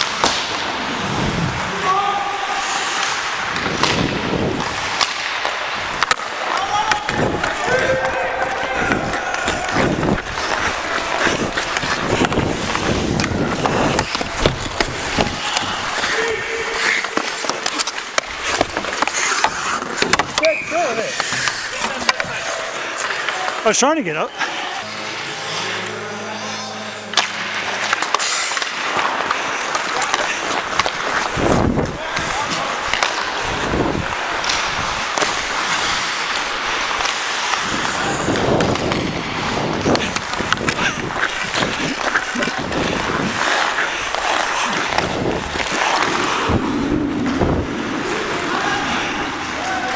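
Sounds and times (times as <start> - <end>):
skates scraping on ice: 0.0 - 49.9
hockey stick knocking puck: 3.0 - 20.6, 21.2 - 22.4, 27.1 - 33.6, 34.4 - 46.6.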